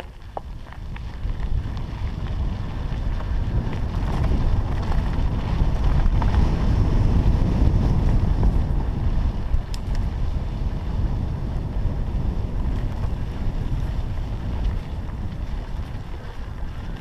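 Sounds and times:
ticks from stones and bike: 0:00.0 - 0:17.0
tyres rolling on gravel: 0:00.0 - 0:17.0
wind rushing over microphone: 0:00.0 - 0:17.0.

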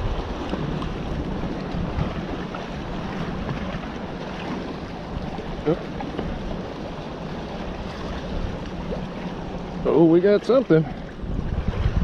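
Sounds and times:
wind noise on microphone: 0:00.0 - 0:04.6, 0:11.0 - 0:12.0
water lapping: 0:00.0 - 0:12.0.

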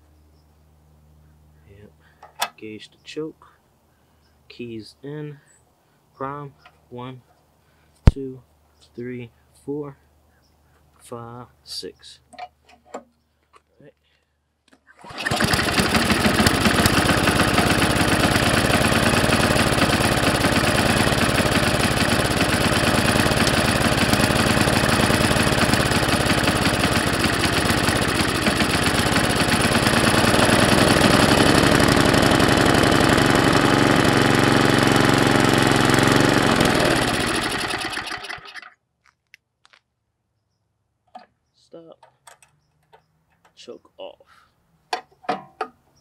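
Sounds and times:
small gas engine running: 0:14.9 - 0:38.7.

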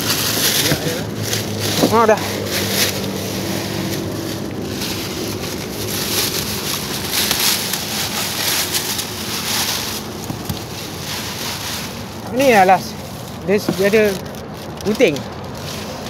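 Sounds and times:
low steady hum: 0:00.0 - 0:16.0
plastic sheeting crinkling: 0:00.0 - 0:16.0.

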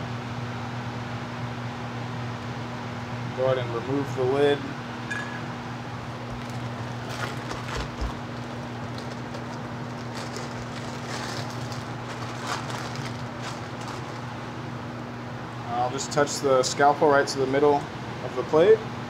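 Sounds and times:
electric blower fan humming: 0:00.0 - 0:19.0
small tools clicking and rustling: 0:06.4 - 0:14.3.

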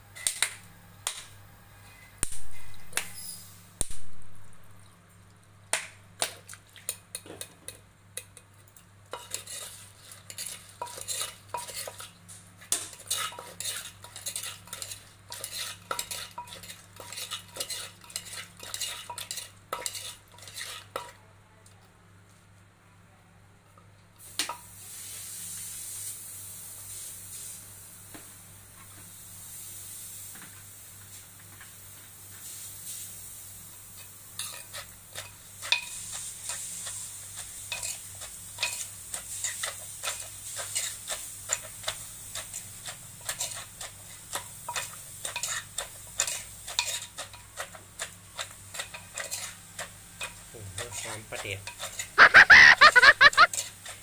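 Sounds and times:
soft hiss: 0:24.1 - 0:42.4.

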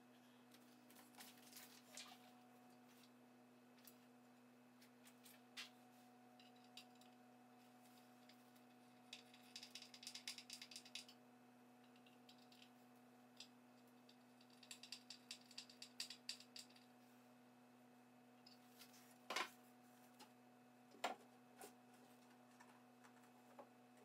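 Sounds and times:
faint steady hum: 0:00.0 - 0:24.0
small hardware clicking and rattling: 0:08.2 - 0:11.2, 0:13.3 - 0:16.9.

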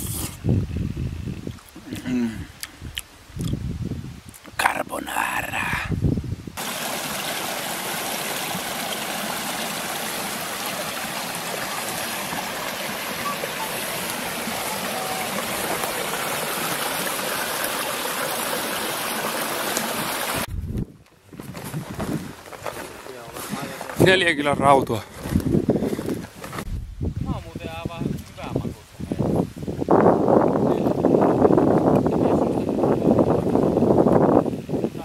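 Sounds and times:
brook running over stones: 0:06.6 - 0:20.5, 0:21.3 - 0:26.7.

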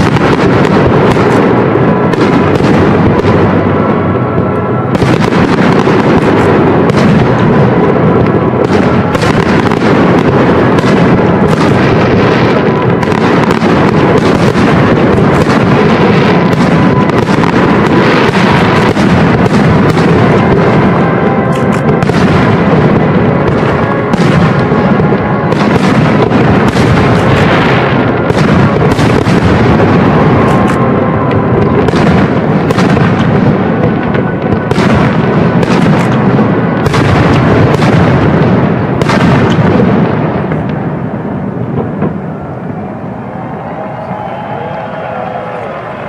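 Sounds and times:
firework shells bursting: 0:00.0 - 0:03.7.

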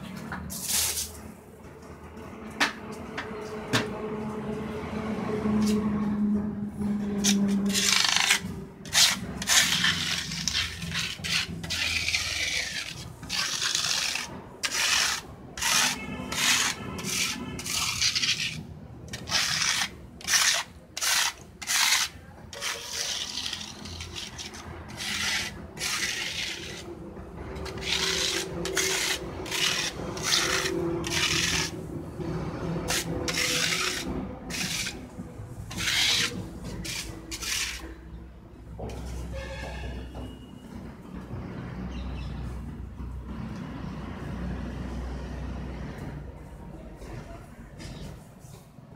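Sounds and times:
scraper rasping across plate: 0:07.3 - 0:26.9, 0:27.6 - 0:31.8, 0:32.8 - 0:35.0, 0:35.7 - 0:37.9.

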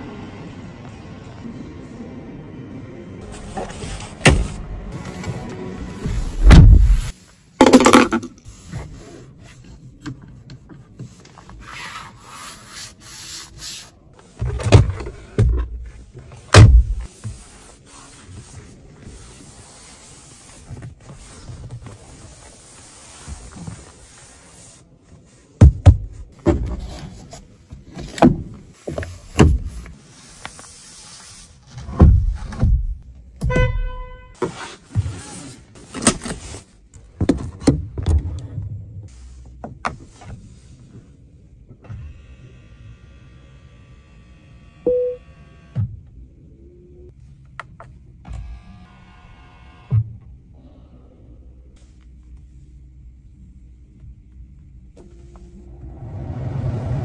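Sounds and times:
short electronic beep: 0:44.9 - 0:45.2.

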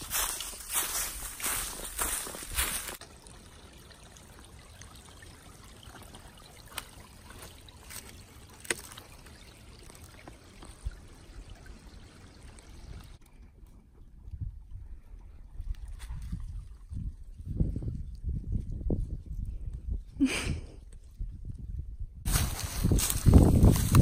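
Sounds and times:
footsteps crunching through leaves: 0:00.0 - 0:03.0, 0:22.3 - 0:24.0
stream trickling: 0:00.0 - 0:18.9.

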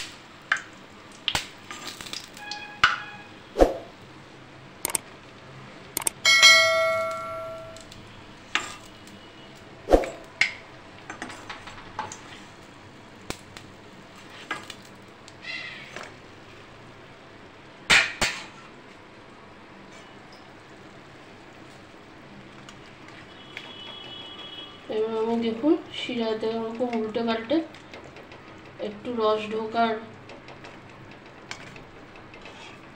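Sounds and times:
bell-like metallic ring: 0:06.2 - 0:07.8
steel ladle knocking on pans: 0:06.2 - 0:07.8.

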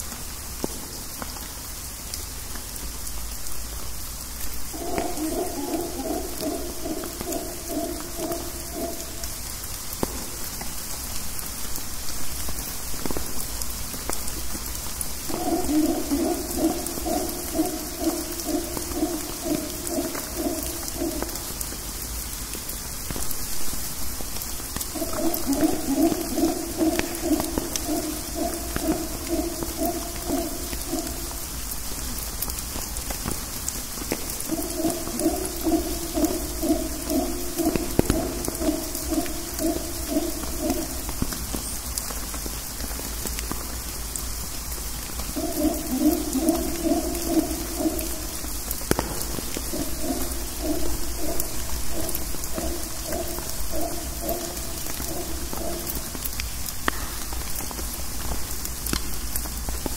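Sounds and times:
rain dripping through canopy: 0:00.0 - 0:59.9
monkey howling: 0:04.7 - 0:09.4, 0:15.2 - 0:21.6, 0:24.9 - 0:31.4, 0:34.3 - 0:41.2, 0:45.3 - 0:48.6, 0:49.2 - 0:56.1
drops hitting leaves: 0:22.5 - 0:43.8, 0:44.4 - 0:59.9.

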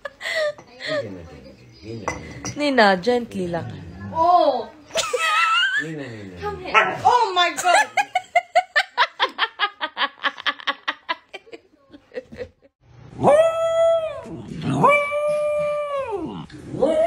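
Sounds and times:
dog whining howls: 0:13.2 - 0:17.0.

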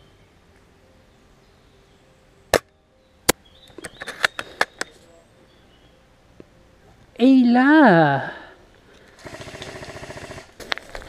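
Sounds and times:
rapid airsoft snaps and clicks: 0:09.2 - 0:11.0.

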